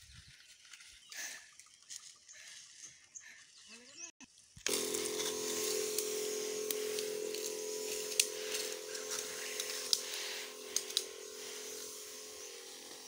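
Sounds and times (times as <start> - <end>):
rustling stalks: 0.1 - 3.6, 4.3 - 13.0
sharp clicks: 4.6 - 13.0
sprayer pump humming: 4.6 - 13.0
spray hissing: 4.7 - 13.0.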